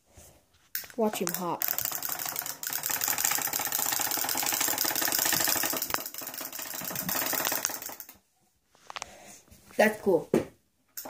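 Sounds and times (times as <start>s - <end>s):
plastic toy hopping on hard surface: 0.9s - 8.1s
clockwork toy motor rattling: 1.2s - 8.2s.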